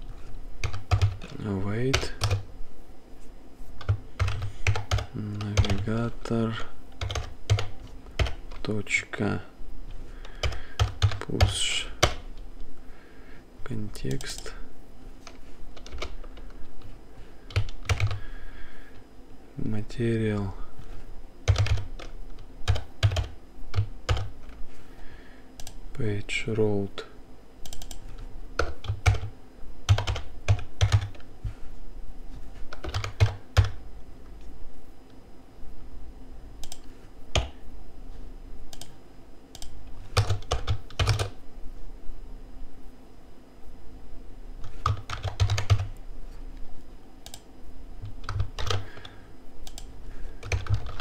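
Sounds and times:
typing on computer keyboard: 0.6s - 2.4s, 3.8s - 5.9s, 7.0s - 8.6s, 10.2s - 12.2s, 15.2s - 16.6s, 17.5s - 18.2s, 21.5s - 24.6s, 27.6s - 29.3s, 29.9s - 31.2s, 32.7s - 33.8s, 38.7s - 41.4s, 44.6s - 45.9s, 48.0s - 51.0s.

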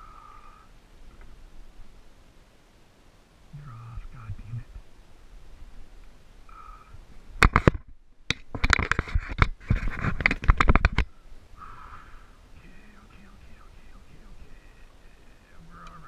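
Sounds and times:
fishing gear scraping and knocking: 7.4s - 11.0s.

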